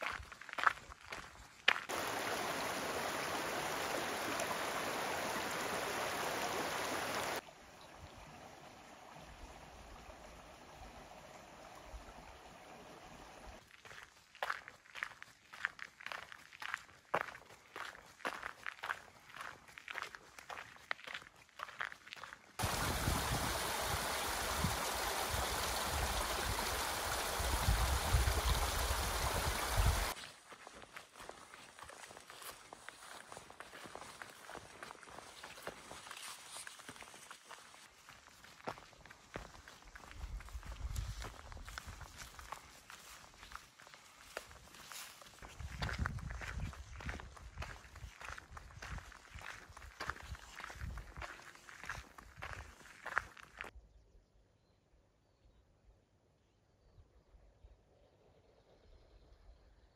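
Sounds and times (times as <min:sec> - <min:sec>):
running water rushing: 0:01.2 - 0:14.0, 0:22.6 - 0:30.2
water pouring onto rocks: 0:22.6 - 0:30.2.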